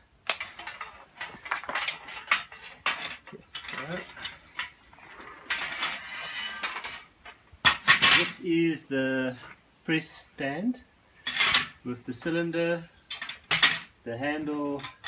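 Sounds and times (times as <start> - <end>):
metal press stand clanking and rattling: 0.2 - 4.8.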